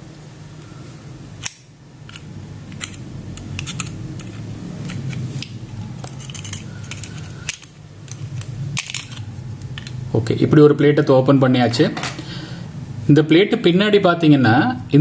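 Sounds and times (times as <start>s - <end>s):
screwdriver clicking and scraping metal: 1.4s - 9.2s.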